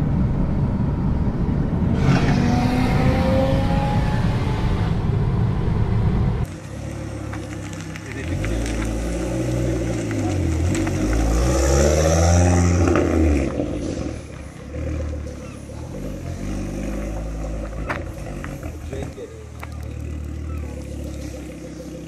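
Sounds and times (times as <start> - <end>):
road noise inside car: 0.0 - 22.0
car engine revving: 1.8 - 22.0.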